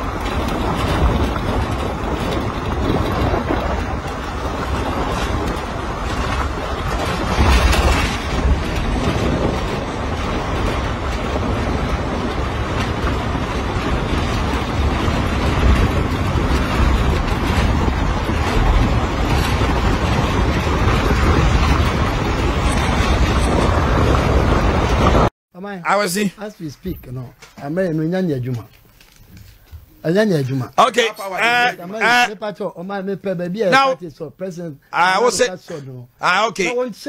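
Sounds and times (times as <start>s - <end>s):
vehicle rumbling on dirt road: 0.0s - 25.3s
wind buffeting microphone: 0.0s - 25.3s.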